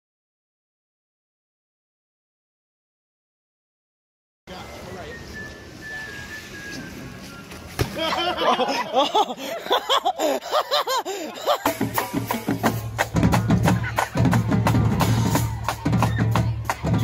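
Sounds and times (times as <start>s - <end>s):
marching band playing: 11.5s - 17.0s.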